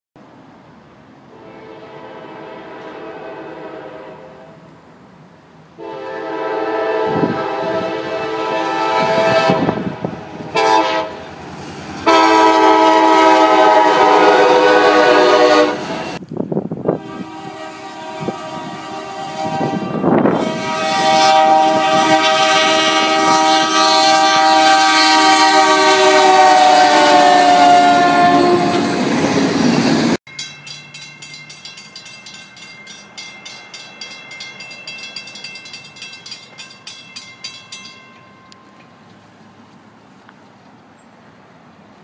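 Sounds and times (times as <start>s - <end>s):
train air horn blast: 1.3s - 4.7s, 5.8s - 11.2s, 12.0s - 16.2s, 16.9s - 29.0s
grade-crossing bells ringing: 30.3s - 39.1s.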